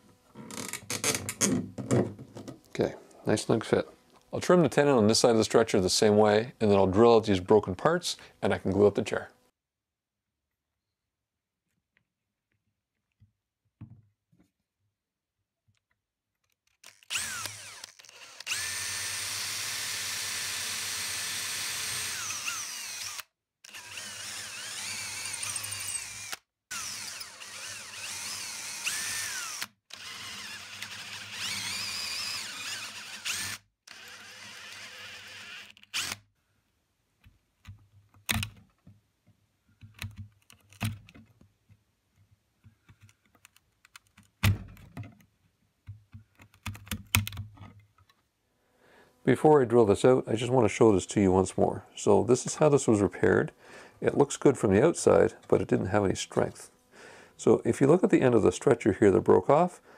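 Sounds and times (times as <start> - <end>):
power drill whining: 16.8 - 36.3.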